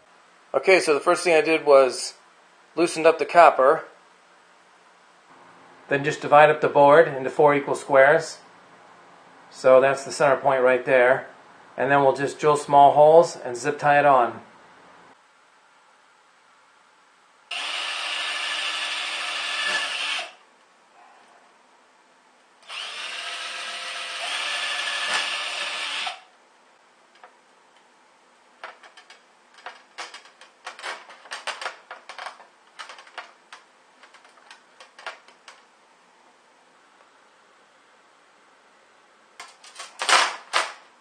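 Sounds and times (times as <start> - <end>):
cordless drill boring wood: 17.5 - 20.4, 22.6 - 26.3.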